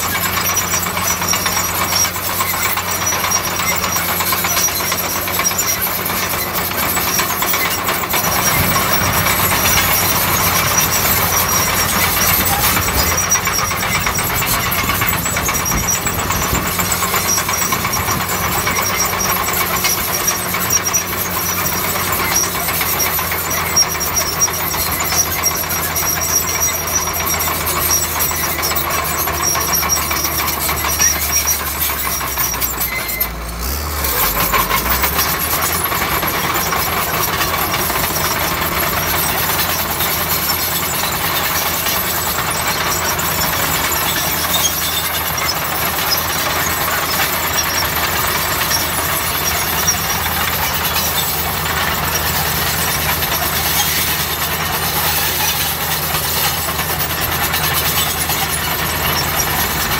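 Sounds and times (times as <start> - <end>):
bulldozer diesel engine: 0.0 - 59.9
mechanical rattle: 0.0 - 59.9.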